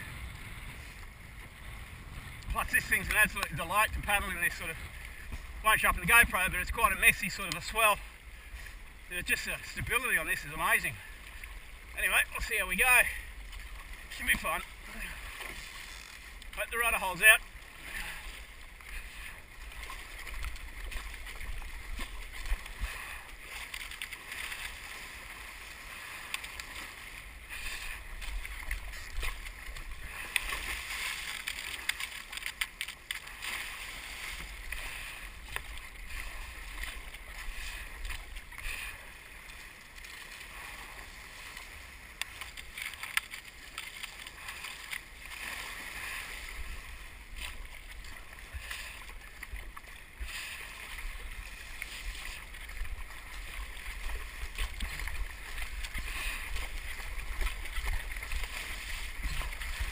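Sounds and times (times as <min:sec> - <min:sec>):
wind rumble on microphone: 0:00.0 - 0:04.2
paddle splashes: 0:00.0 - 0:59.9
water splashing along hull: 0:00.0 - 0:59.9.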